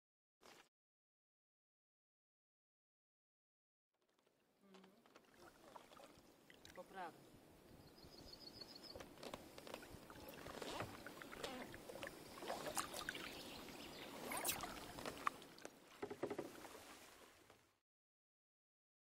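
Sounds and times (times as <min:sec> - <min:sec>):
kayak paddle splashing: 0:04.1 - 0:07.2, 0:09.0 - 0:17.7
water dripping off paddle: 0:09.6 - 0:17.1.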